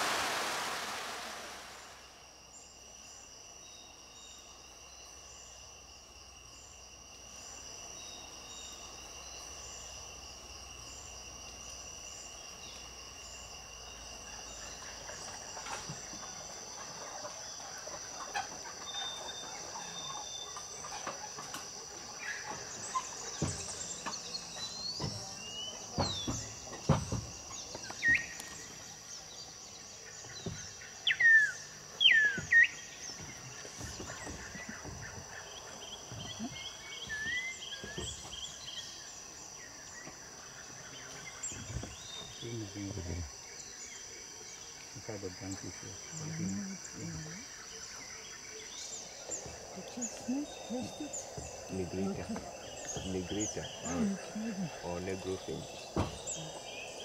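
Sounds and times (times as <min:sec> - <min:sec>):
high insect buzz: 0:00.0 - 0:57.0
whistled bird calls: 0:27.8 - 0:28.8, 0:31.0 - 0:33.0, 0:36.2 - 0:38.2.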